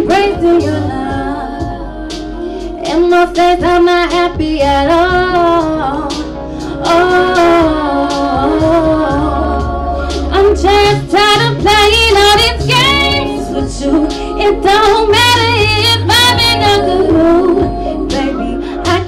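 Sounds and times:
steady bass line: 0:00.0 - 0:19.0
woman singing into a microphone: 0:00.0 - 0:19.0
band playing: 0:07.0 - 0:18.6.

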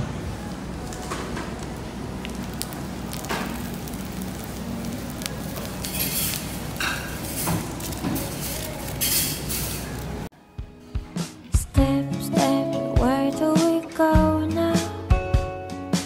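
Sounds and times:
food sizzling and crackling: 0:00.4 - 0:10.3
tableware clinking: 0:05.8 - 0:10.1.

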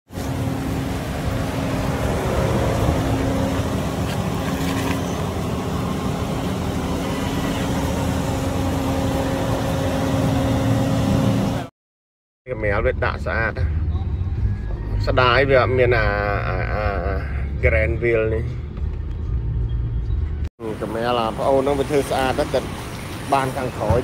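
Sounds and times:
car engine running: 0:00.1 - 0:11.7.

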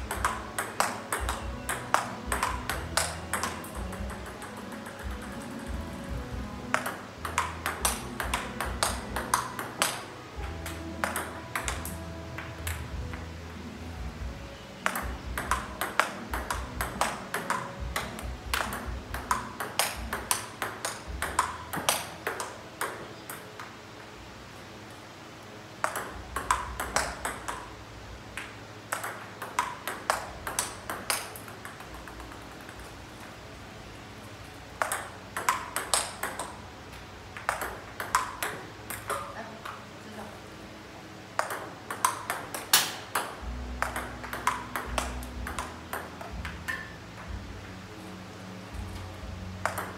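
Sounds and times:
table tennis balls clicking: 0:00.0 - 0:13.4, 0:14.8 - 0:23.8, 0:25.8 - 0:33.3, 0:34.7 - 0:39.8, 0:41.3 - 0:47.4, 0:48.8 - 0:49.9.

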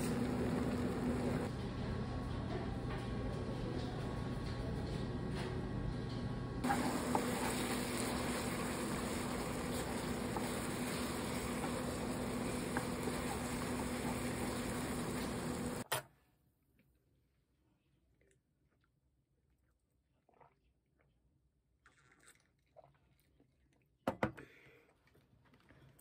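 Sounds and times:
noodles sizzling in a pan: 0:06.6 - 0:15.8.

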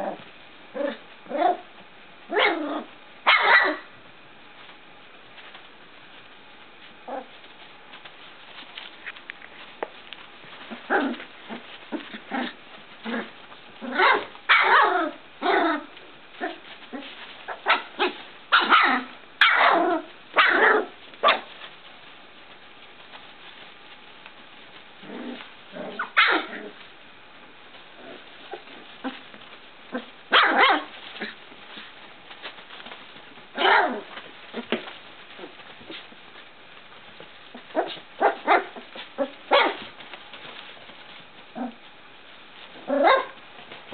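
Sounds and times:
puppies yipping and whining: 0:25.9 - 0:26.9.

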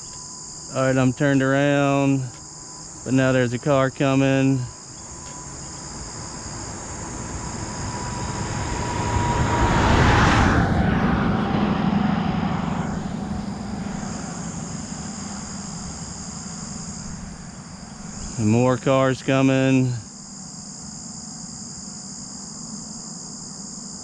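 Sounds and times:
crickets chirping: 0:00.0 - 0:24.0
car passing: 0:04.6 - 0:19.2.

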